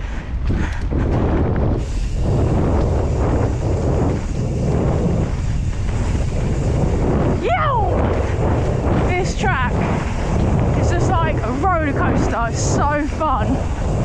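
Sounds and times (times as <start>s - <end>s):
bike tyres rumbling over dirt: 0.0s - 14.0s
wind buffeting microphone: 0.0s - 14.0s
person whooping: 7.4s - 8.0s.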